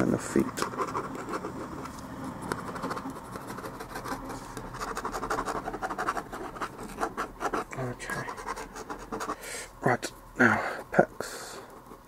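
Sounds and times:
pen scratching on paper: 0:00.3 - 0:01.9, 0:02.5 - 0:09.4.

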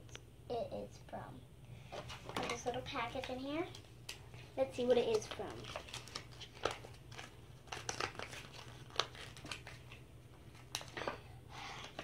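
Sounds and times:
packet crinkling: 0:04.8 - 0:11.0.

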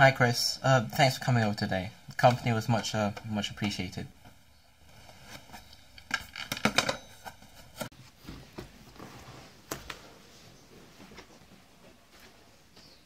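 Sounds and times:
soft footsteps and shuffling: 0:07.2 - 0:13.0.

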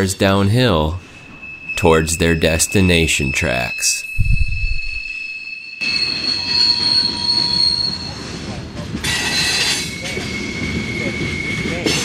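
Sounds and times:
train wheels squealing: 0:00.6 - 0:12.0
low rumble: 0:04.0 - 0:05.4.

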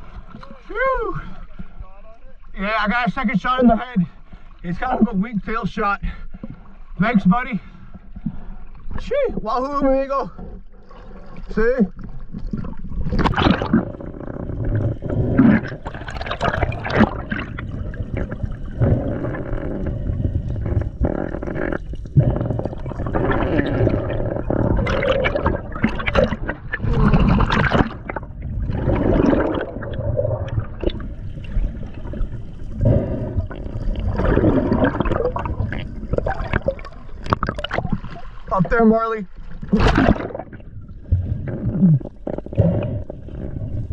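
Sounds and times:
water splashing and gurgling: 0:07.8 - 0:43.9
bubbles streaming: 0:10.7 - 0:43.9.

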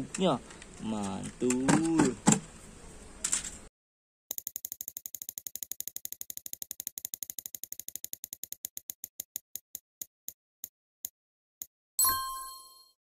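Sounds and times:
prize wheel clicking: 0:04.3 - 0:09.0.

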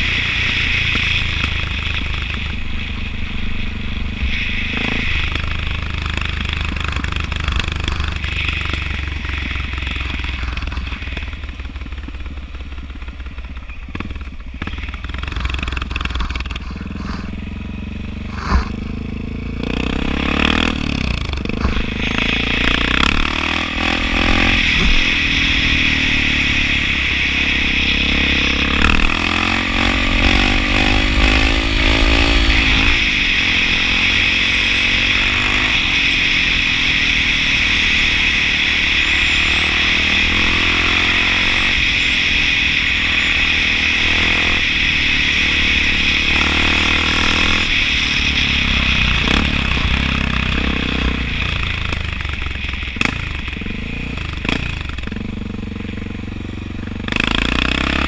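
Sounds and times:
motorcycle engine running: 0:00.0 - 0:58.0.

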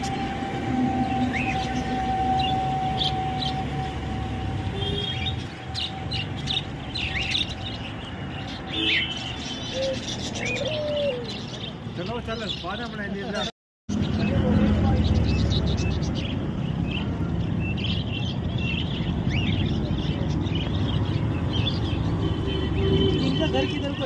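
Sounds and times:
street traffic rumble: 0:00.0 - 0:24.0
budgerigars chirping: 0:05.0 - 0:24.0.

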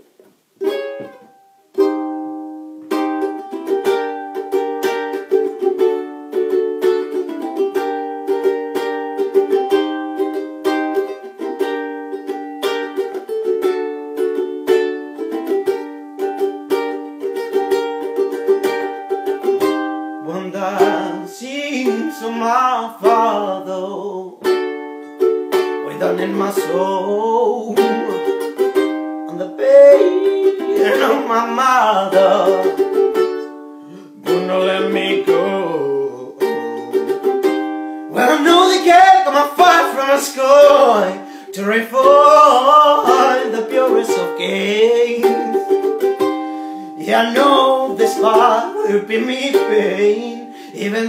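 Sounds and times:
ukulele strumming: 0:00.0 - 0:51.0
person singing: 0:18.3 - 0:24.8, 0:25.4 - 0:51.0.

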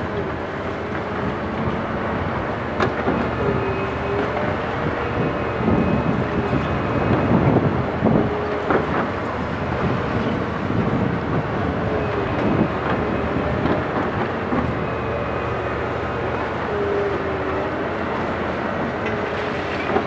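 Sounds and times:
excavator engine and hydraulic drone: 0:00.0 - 0:20.0.

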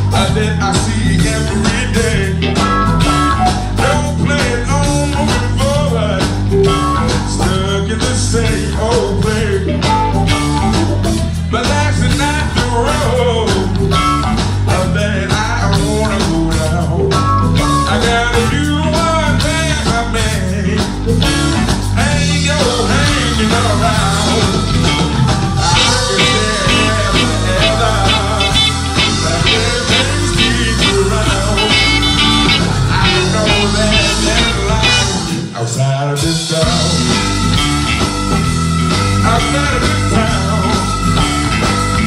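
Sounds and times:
bass: 0:00.0 - 0:42.0
drums: 0:00.0 - 0:42.0
electric guitar solo: 0:23.8 - 0:35.5.

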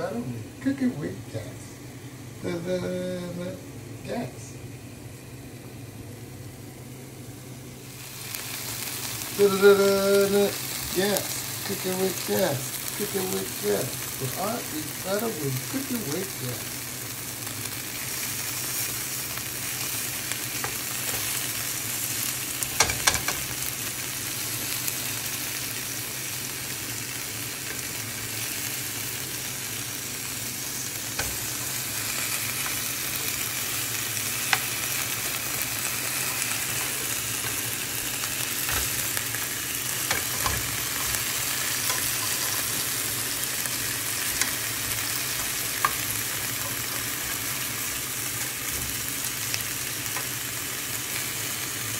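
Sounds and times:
chicken skin sizzling in skillet: 0:06.9 - 0:51.9.

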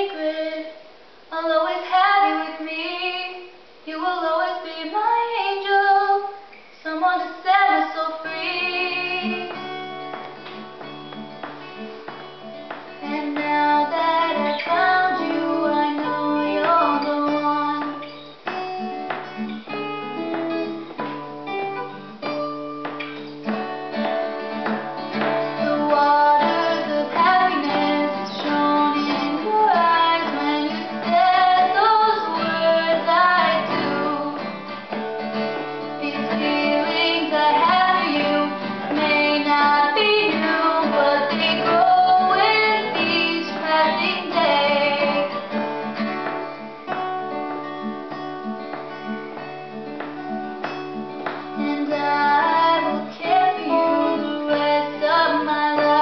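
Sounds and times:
girls singing: 0:00.0 - 0:09.7, 0:12.7 - 0:18.5, 0:25.2 - 0:35.0, 0:35.6 - 0:45.6, 0:51.2 - 0:56.0
acoustic guitar: 0:00.0 - 0:56.0.

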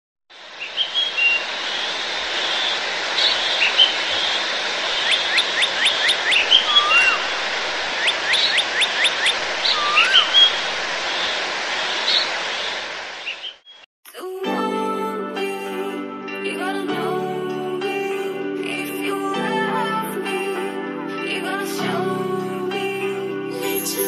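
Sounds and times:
steady rushing noise: 0:00.3 - 0:13.6
bird whistling rising notes: 0:00.6 - 0:13.8
rising then falling bird whistle: 0:05.0 - 0:07.3, 0:08.0 - 0:10.6
short bird chirps: 0:08.0 - 0:10.6.

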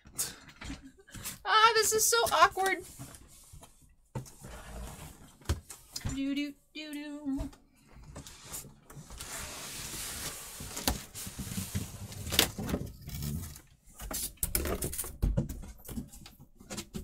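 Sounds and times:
cardboard boxes scraping: 0:04.2 - 0:05.4, 0:08.2 - 0:13.6.

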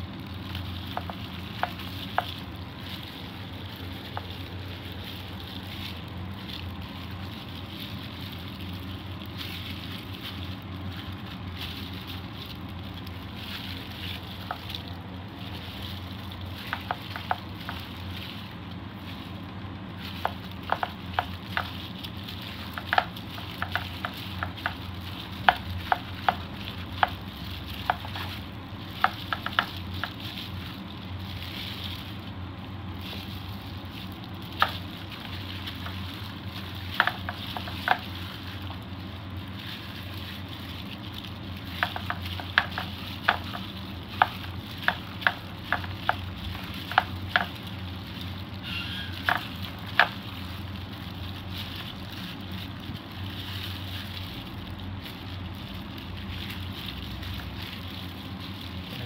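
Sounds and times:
frying hiss: 0:00.0 - 0:59.0.

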